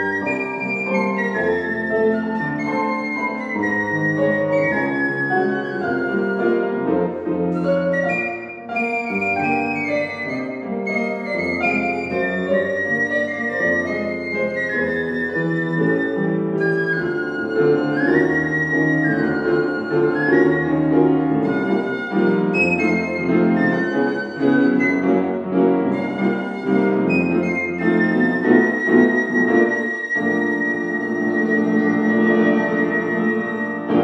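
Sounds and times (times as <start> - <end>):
piano chords: 0.0 - 34.0
piccolo melody: 0.0 - 34.0.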